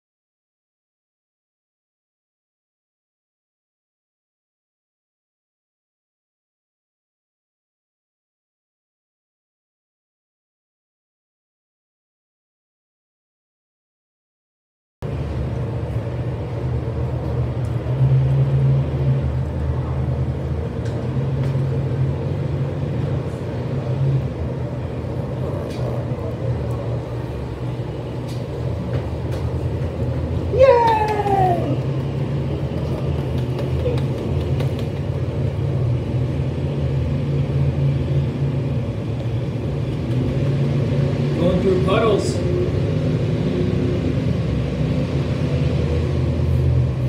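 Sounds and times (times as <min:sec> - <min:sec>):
muffled truck engines rumbling: 0:15.0 - 0:47.0.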